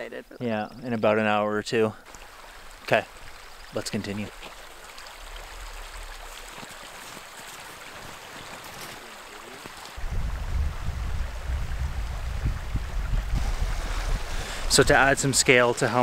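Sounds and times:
creek water running: 0:00.0 - 0:16.0
wind buffeting microphone: 0:10.0 - 0:15.4.

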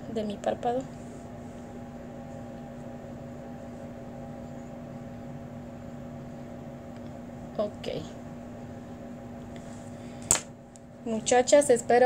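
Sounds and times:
machine hum with faint hiss: 0:00.0 - 0:12.0.

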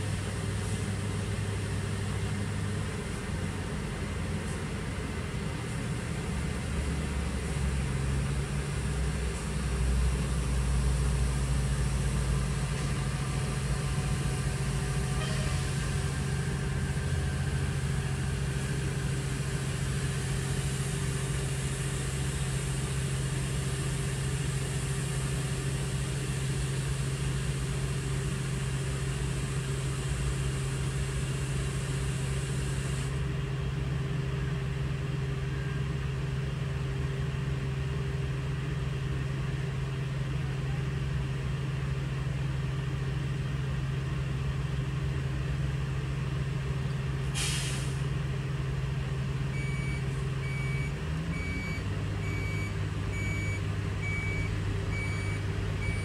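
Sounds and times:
diesel truck engine running: 0:00.0 - 0:56.0
air brake hiss: 0:47.2 - 0:48.1.

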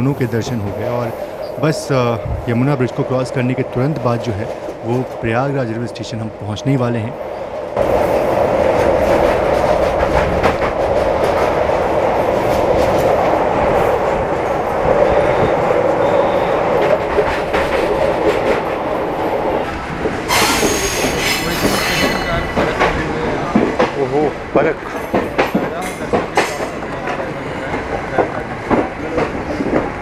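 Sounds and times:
train wheels rumbling on rails: 0:00.0 - 0:30.0
rail-joint clacks: 0:15.5 - 0:30.0
high hissing screech: 0:20.3 - 0:22.5.

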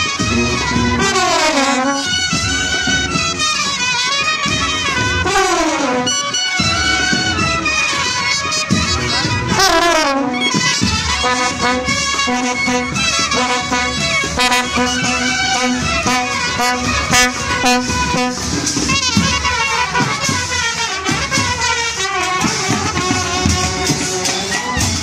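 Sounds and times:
drum beats: 0:00.0 - 0:25.0
marching brass band playing: 0:00.0 - 0:25.0.

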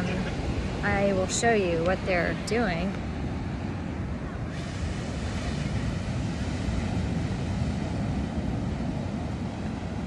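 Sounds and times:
wind on microphone: 0:00.0 - 0:10.0.

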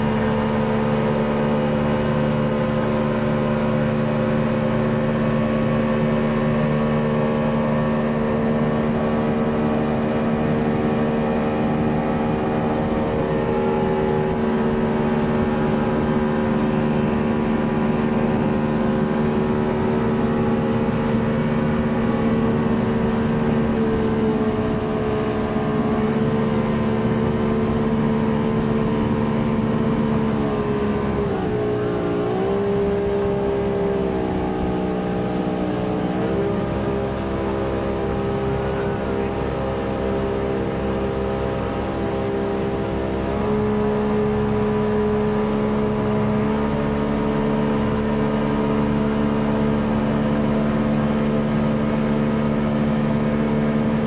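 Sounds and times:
motorboat engine running: 0:00.0 - 0:54.0
water rushing from wake: 0:00.0 - 0:54.0.

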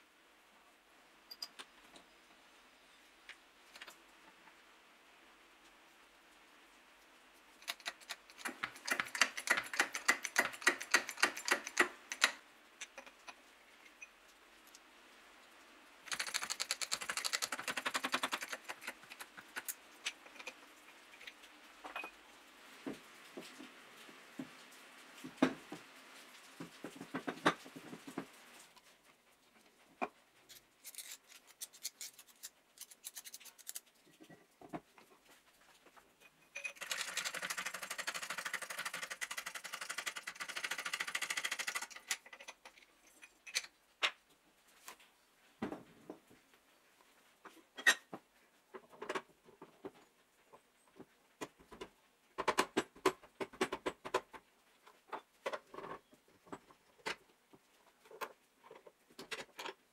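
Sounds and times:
metal parts clicking and knocking: 0:07.6 - 0:14.1, 0:16.1 - 0:22.1, 0:30.5 - 0:34.0, 0:36.2 - 0:43.8.

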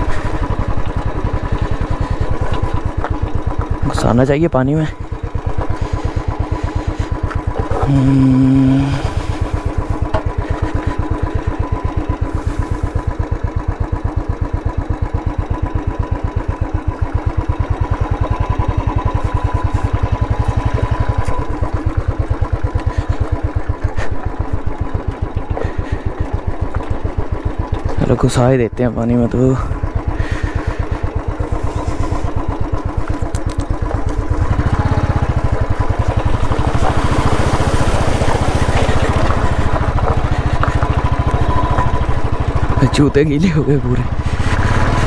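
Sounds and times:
motorcycle engine thumping: 0:00.0 - 0:03.9, 0:05.0 - 0:08.5, 0:09.3 - 0:13.1
tyres rolling over gravel: 0:30.2 - 0:45.0.

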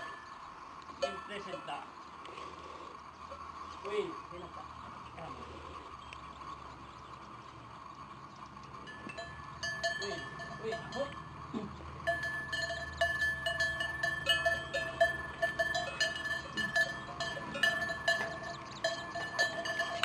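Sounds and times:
cowbells clanking: 0:00.0 - 0:02.5, 0:05.9 - 0:20.0.

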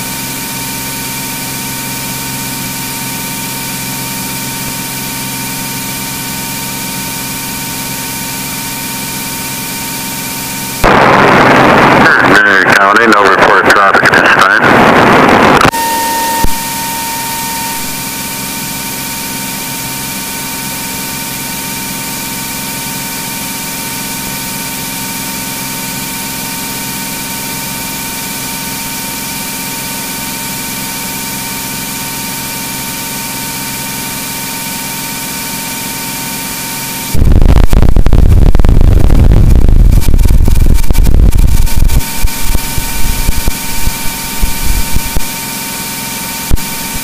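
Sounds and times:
aircraft engine and propeller drone: 0:00.0 - 0:37.2
radio audio: 0:10.8 - 0:18.0, 0:37.2 - 0:45.3, 0:46.4 - 0:47.0.

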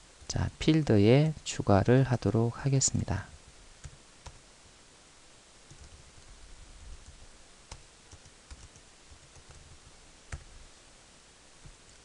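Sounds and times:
low steady hiss: 0:00.0 - 0:12.0
computer keyboard keystrokes: 0:05.7 - 0:06.0, 0:07.0 - 0:10.5.

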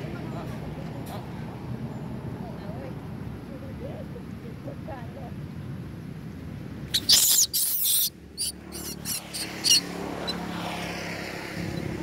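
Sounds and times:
monkey shrill squeals: 0:06.9 - 0:09.9.

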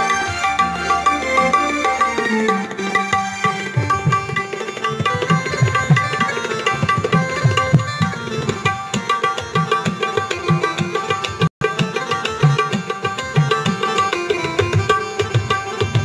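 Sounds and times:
harmonium melody: 0:00.0 - 0:16.0
tabla strokes: 0:00.0 - 0:16.0.

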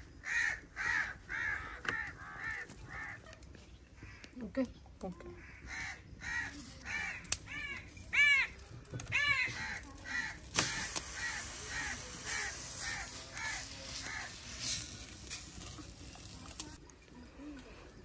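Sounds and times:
crow cawing: 0:00.2 - 0:03.2, 0:05.4 - 0:16.4
bread sizzling in butter: 0:10.1 - 0:16.8.

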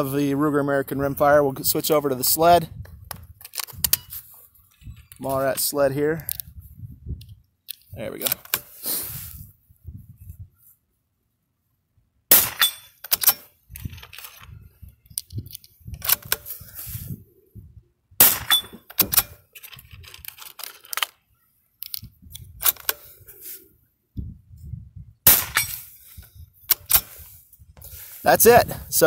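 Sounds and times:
wind buffeting microphone: 0:00.7 - 0:08.1, 0:09.2 - 0:10.6, 0:13.6 - 0:17.9, 0:22.0 - 0:22.6, 0:24.1 - 0:29.0
metallic clicks of rifle action: 0:02.8 - 0:05.3, 0:06.2 - 0:06.5, 0:07.1 - 0:08.8, 0:12.5 - 0:16.7, 0:18.4 - 0:23.3, 0:25.4 - 0:27.4
rifle shots: 0:12.3 - 0:13.4, 0:18.2 - 0:19.4, 0:25.3 - 0:25.8.

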